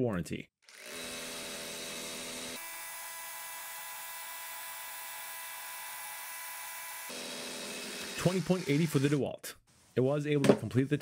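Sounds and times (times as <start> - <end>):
hammer drill whining into concrete: 0.7 - 9.2.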